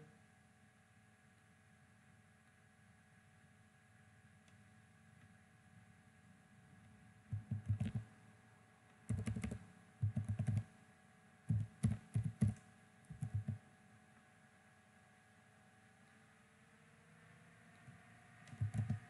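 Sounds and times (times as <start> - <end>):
keyboard typing: 7.3 - 8.1, 9.1 - 10.7, 11.5 - 13.6, 18.5 - 19.0.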